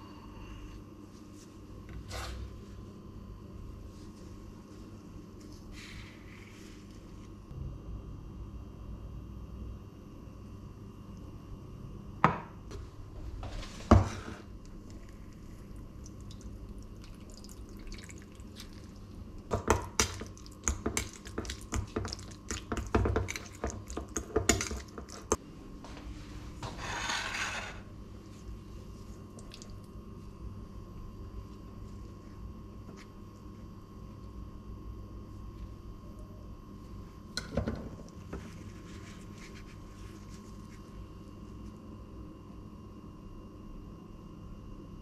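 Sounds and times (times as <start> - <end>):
tableware set down on countertop: 12.2 - 12.6.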